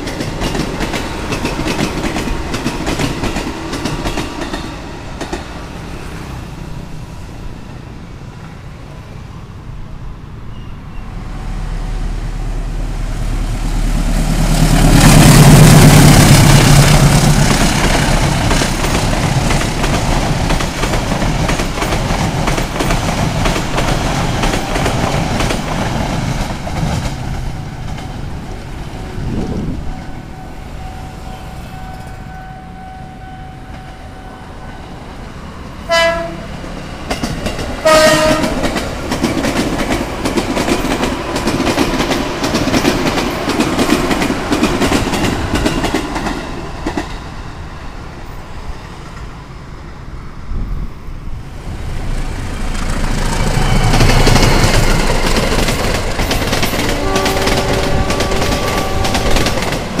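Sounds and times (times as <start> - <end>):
diesel locomotive engine rumbling: 0.0 - 60.0
train wheels rushing on rails: 0.0 - 60.0
train horn blasts: 29.2 - 34.9, 35.9 - 36.6, 37.8 - 38.8, 56.7 - 59.7.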